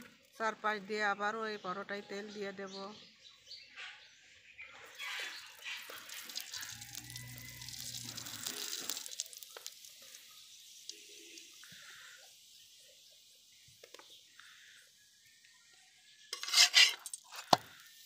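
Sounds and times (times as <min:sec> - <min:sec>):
flatbread sizzling on griddle: 0:04.8 - 0:18.0.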